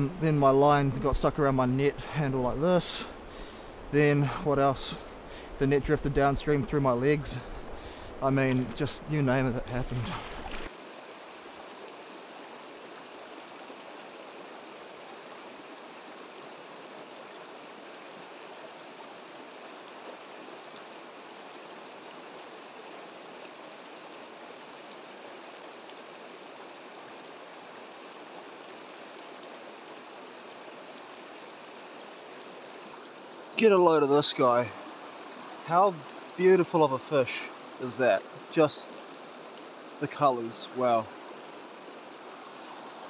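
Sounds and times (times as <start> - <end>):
stream flowing over stones: 0.0 - 43.0.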